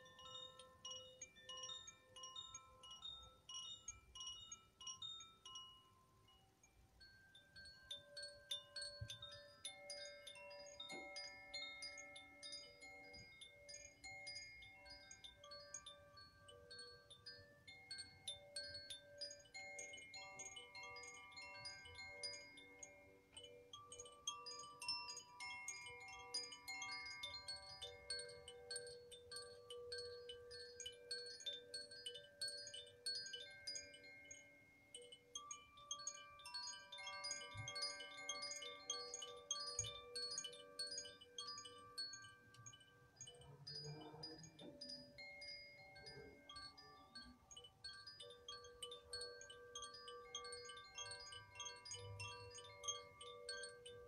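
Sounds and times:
chimes ringing softly: 0:00.0 - 0:54.0.

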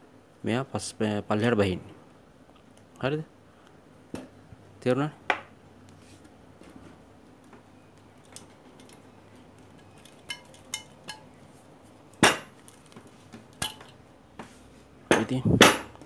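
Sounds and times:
metal parts clinking: 0:08.2 - 0:09.0, 0:09.7 - 0:11.3.

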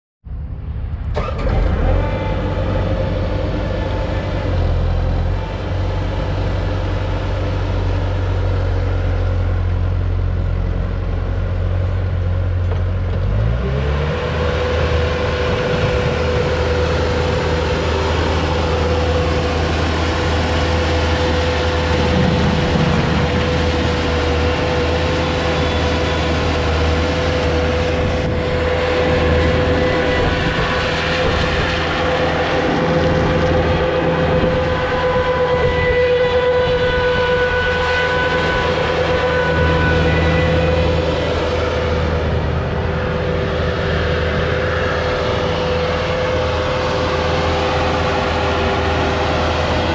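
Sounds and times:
diesel engine idling and revving: 0:00.3 - 0:49.9
high whine: 0:14.3 - 0:49.9.

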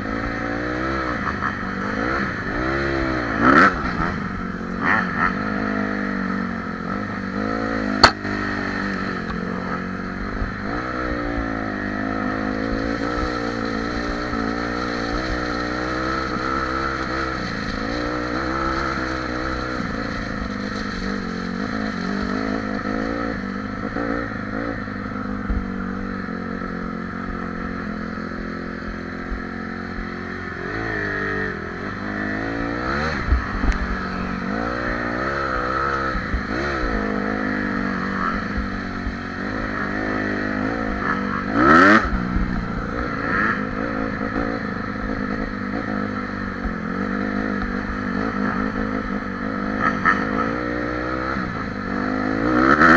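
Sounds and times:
dirt bike engine revving: 0:00.0 - 0:52.9
sharp knock: 0:08.0 - 0:08.3.

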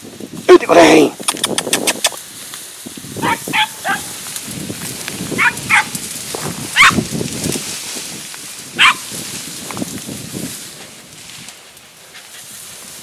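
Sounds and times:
hound yelping: 0:03.2 - 0:04.2, 0:05.4 - 0:06.0, 0:06.7 - 0:07.0, 0:08.8 - 0:09.0.

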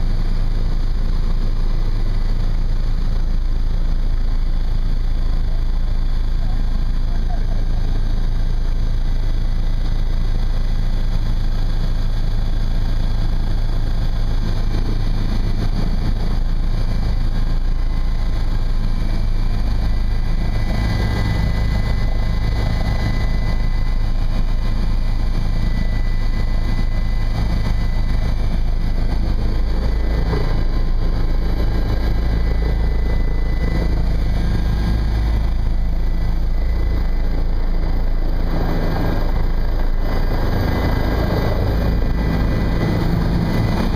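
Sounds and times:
helicopter engine and rotor: 0:00.0 - 0:43.9.

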